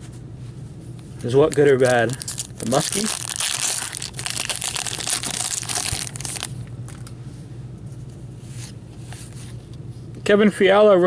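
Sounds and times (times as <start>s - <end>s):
cards rustling: 1.2s - 6.5s
wrapper tearing and crinkling: 1.5s - 6.6s.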